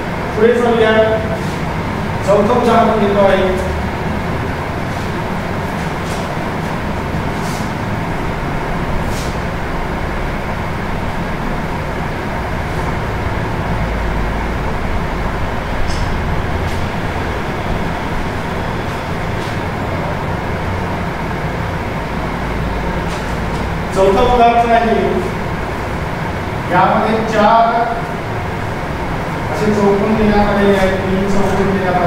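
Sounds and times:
steady background noise: 0:00.0 - 0:32.0
hand wiping whiteboard swishes: 0:04.9 - 0:07.8.

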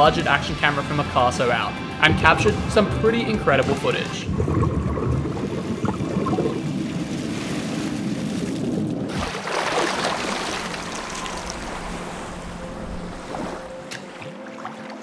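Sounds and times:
sea water splashing: 0:02.0 - 0:15.0
underwater breath bubbling: 0:04.3 - 0:07.0.

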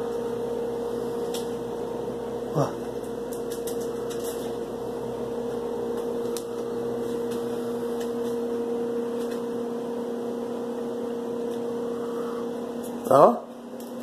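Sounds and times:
machine hum with two tones: 0:00.0 - 0:14.0.

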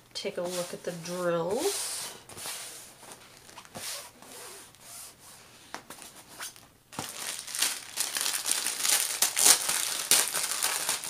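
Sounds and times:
hands smoothing canvas: 0:00.4 - 0:06.6
packaging rustling and crinkling: 0:05.8 - 0:11.0.

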